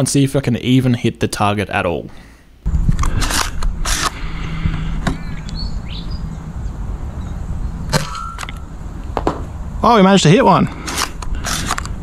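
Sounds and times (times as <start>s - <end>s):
steady low rumble: 2.6s - 12.0s
birds chirping: 4.1s - 10.0s.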